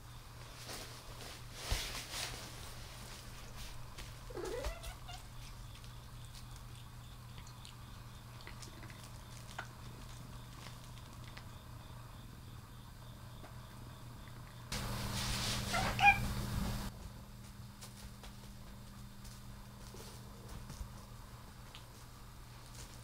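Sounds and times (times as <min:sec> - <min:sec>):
steady low hum: 0:00.0 - 0:23.0
rustling: 0:00.4 - 0:11.5
cat meowing: 0:04.3 - 0:05.3, 0:15.7 - 0:16.3.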